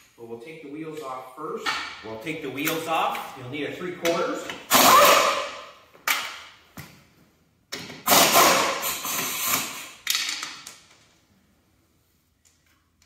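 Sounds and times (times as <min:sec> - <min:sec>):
pneumatic impact wrench bursts: 0:04.6 - 0:05.6, 0:07.9 - 0:10.2.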